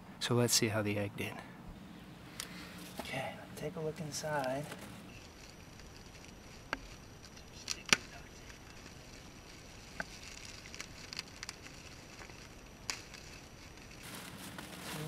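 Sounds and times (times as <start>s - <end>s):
plastic bag crinkling: 4.5s - 15.0s.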